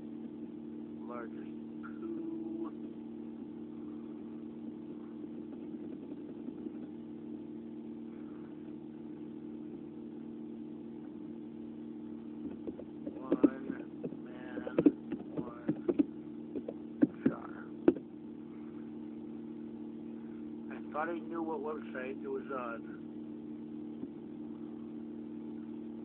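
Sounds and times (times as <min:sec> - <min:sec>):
low hum: 0:00.0 - 0:26.0
muffled voice: 0:01.0 - 0:02.8, 0:13.1 - 0:15.9, 0:17.0 - 0:17.8, 0:20.7 - 0:23.0.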